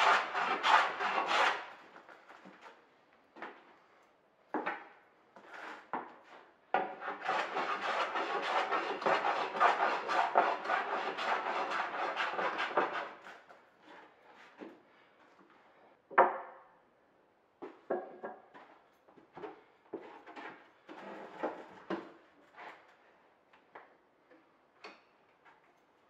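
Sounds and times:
hand tool rasping wood: 0:00.0 - 0:01.7, 0:06.9 - 0:13.2
tools and wood knocking: 0:17.6 - 0:18.8.

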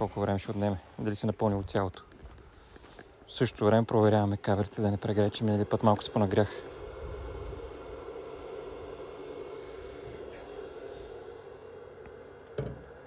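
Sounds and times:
power inverter humming: 0:03.9 - 0:13.0.

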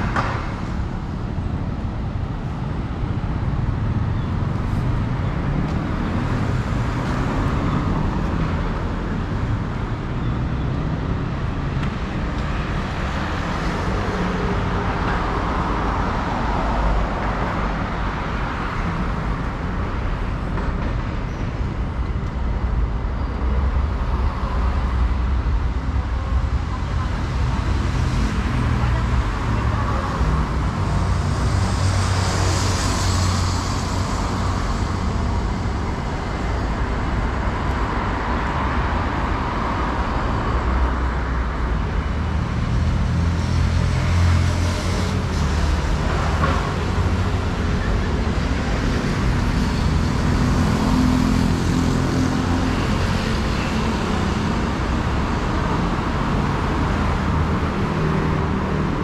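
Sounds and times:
road traffic: 0:00.0 - 0:59.0.

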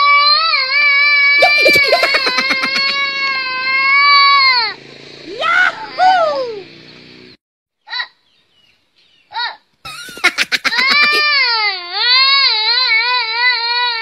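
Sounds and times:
child wailing: 0:00.6 - 0:04.7, 0:09.4 - 0:14.0
child crying: 0:00.7 - 0:04.7, 0:09.4 - 0:14.0.

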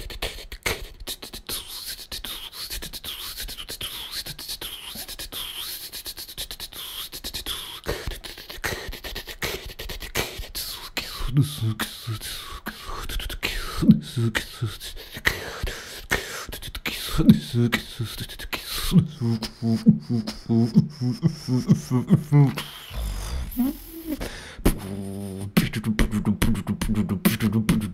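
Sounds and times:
person beatboxing: 0:00.0 - 0:27.9
hummed bass notes: 0:22.9 - 0:24.8.

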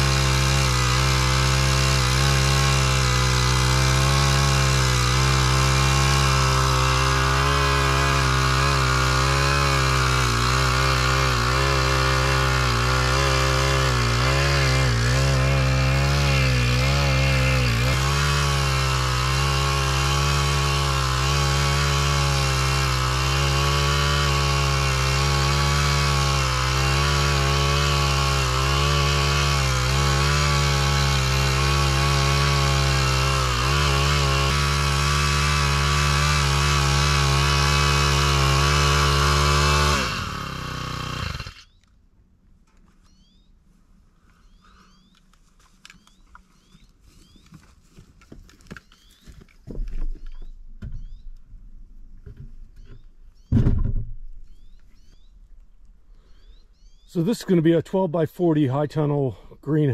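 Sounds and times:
small engine running: 0:00.0 - 0:41.8.

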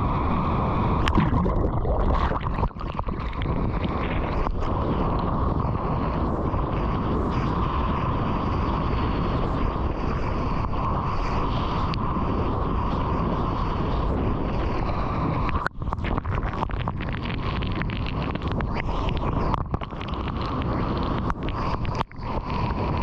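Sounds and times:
wind noise: 0:00.0 - 0:23.0
crackling foam splashes: 0:00.9 - 0:05.3, 0:14.7 - 0:23.0
rushing water: 0:01.0 - 0:04.8.

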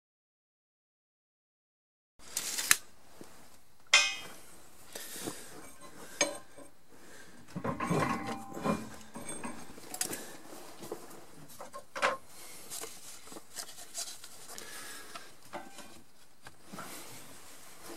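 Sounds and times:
metal knocks and clinks: 0:03.9 - 0:04.4, 0:07.6 - 0:09.9
metal scraping and clattering: 0:07.6 - 0:10.2.

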